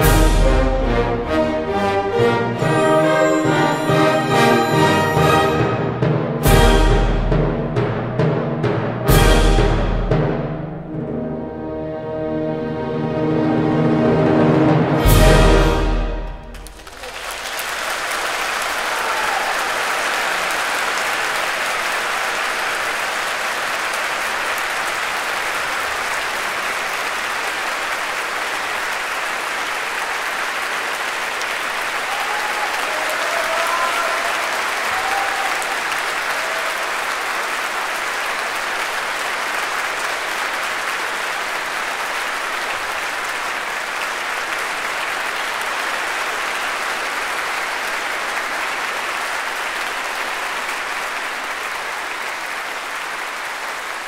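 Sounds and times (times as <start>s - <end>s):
audience applauding: 15.1s - 54.0s.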